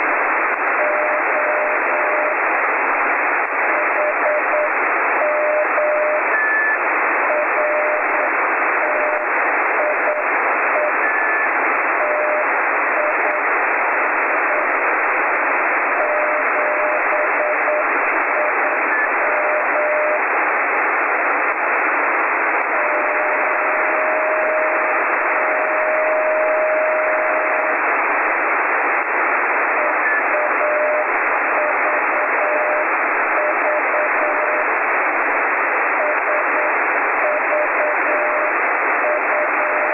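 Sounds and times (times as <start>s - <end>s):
radio receiver hiss: 0.0s - 39.9s
morse code tone: 0.8s - 2.4s, 3.7s - 13.5s, 16.0s - 20.2s, 22.7s - 27.8s, 29.8s - 34.7s, 36.0s - 39.9s.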